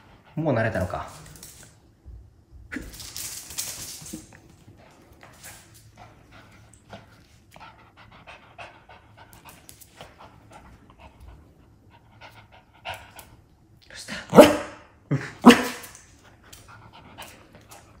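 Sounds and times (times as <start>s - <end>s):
dog panting: 4.8s - 13.4s
dog barking: 14.3s - 14.8s, 15.4s - 15.8s.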